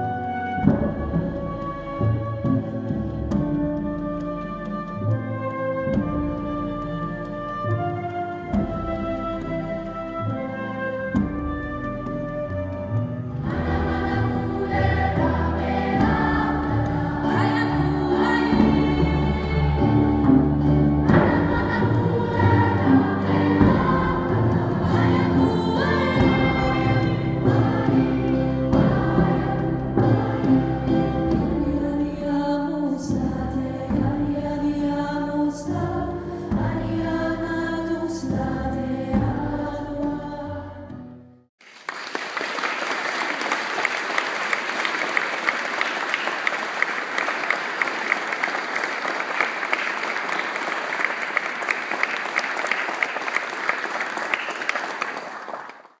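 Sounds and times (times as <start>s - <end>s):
children's choir singing: 13.4s - 40.8s
audience applauding: 41.6s - 56.0s.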